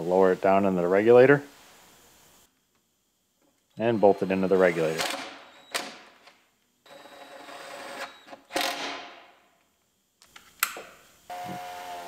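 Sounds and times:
power driver whirring: 11.3 - 12.0.

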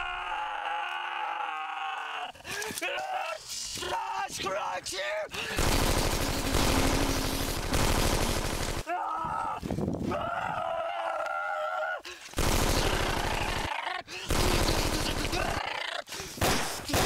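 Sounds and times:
machine-gun fire: 5.6 - 8.8, 12.4 - 13.7, 14.3 - 15.6.

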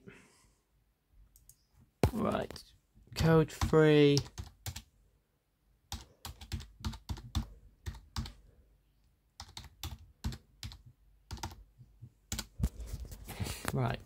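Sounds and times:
computer keyboard typing: 3.4 - 4.9, 5.9 - 8.4, 9.4 - 12.6.

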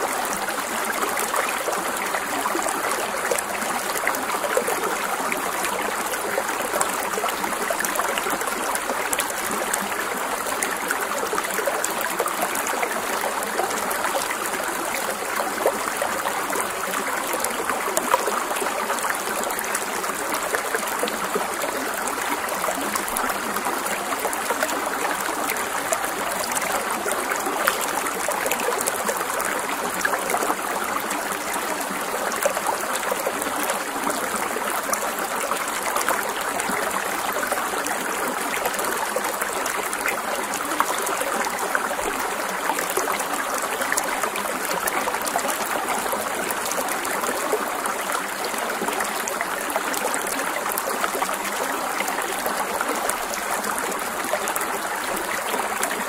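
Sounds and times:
stream water flowing: 0.0 - 56.0.

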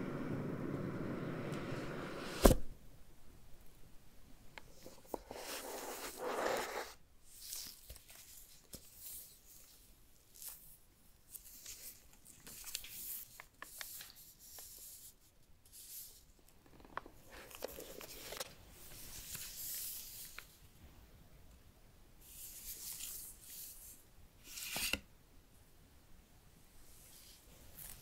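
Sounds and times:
paper rustling and crinkling: 11.3 - 14.8, 17.0 - 20.6.

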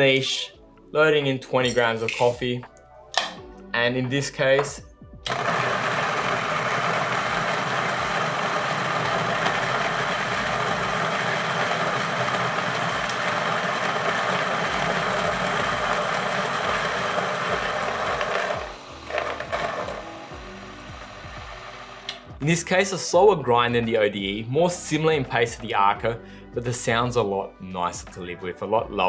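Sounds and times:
coffee grinder grinding: 5.3 - 22.1.

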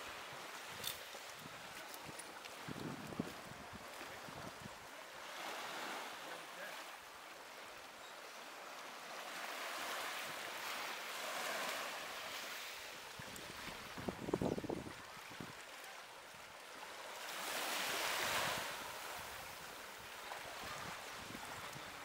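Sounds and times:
waves washing onto beach: 0.0 - 22.0
wind gust on microphone: 13.2 - 15.5.

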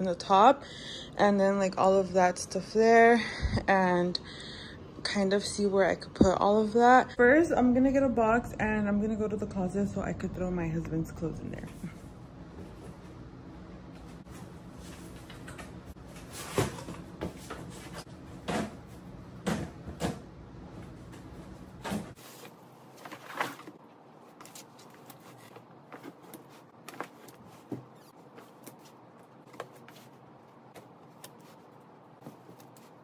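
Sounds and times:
cardboard knocks and scrapes: 24.5 - 31.6.

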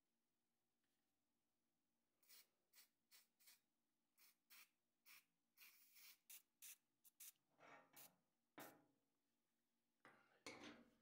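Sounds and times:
aerosol spray can hissing: 2.2 - 7.4.

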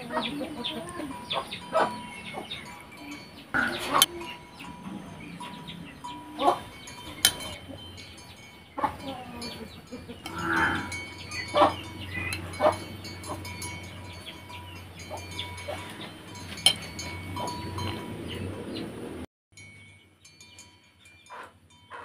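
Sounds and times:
spoon clinking on ceramic plate: 6.0 - 8.3, 8.9 - 18.0.

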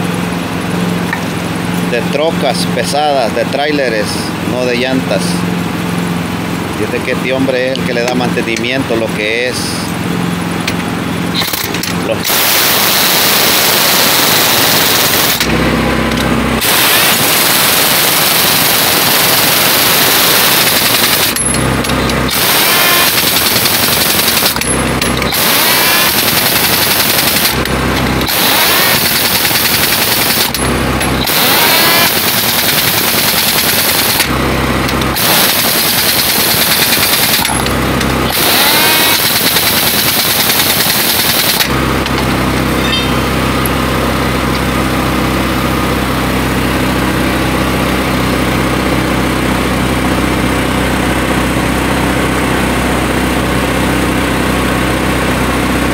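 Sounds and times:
engine hum: 0.0 - 55.9
pneumatic impact wrench hammering: 10.6 - 44.9.

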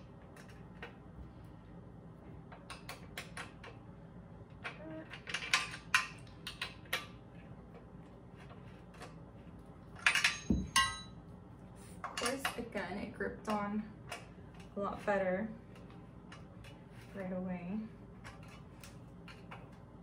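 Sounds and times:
metal bolt clicks and clinks: 10.0 - 11.1.

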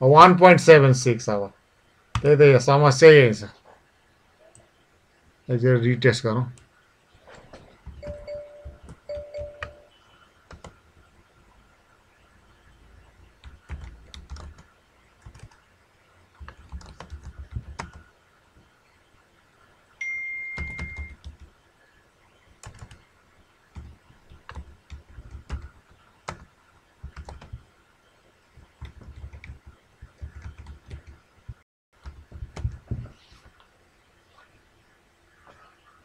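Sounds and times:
keyboard typing clicks: 8.0 - 9.8, 20.0 - 21.5
short high beep: 20.0 - 21.2.

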